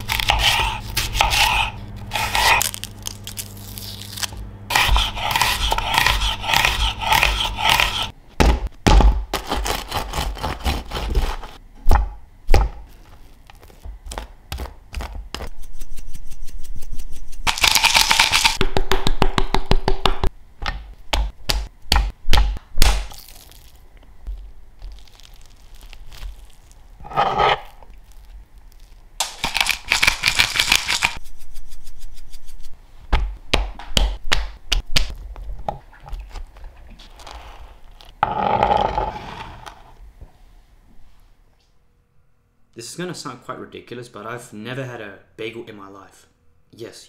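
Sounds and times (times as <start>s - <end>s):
knife scraping board: 0.0s - 2.8s, 4.7s - 8.1s, 27.0s - 27.8s, 37.1s - 40.0s
low steady hum: 0.0s - 18.6s, 20.3s - 29.8s
knife chopping on cutting board: 0.1s - 2.6s, 4.7s - 12.8s.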